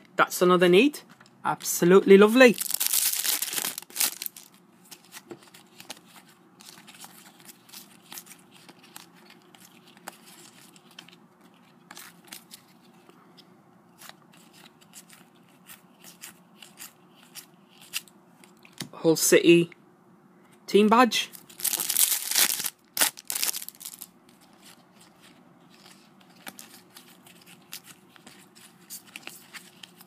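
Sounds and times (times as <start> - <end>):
foil wrappers crinkling: 2.4 - 12.7, 21.4 - 30.0.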